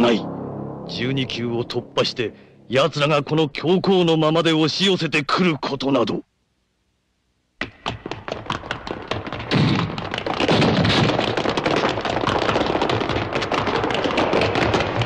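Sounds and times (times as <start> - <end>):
dense noise layer: 0.0 - 15.0
armoured feet stamping on stone: 7.6 - 15.0.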